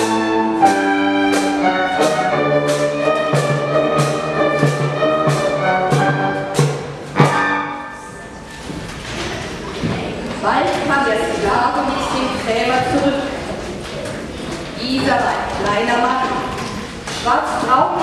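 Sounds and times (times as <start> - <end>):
orchestra playing: 0.0 - 8.7.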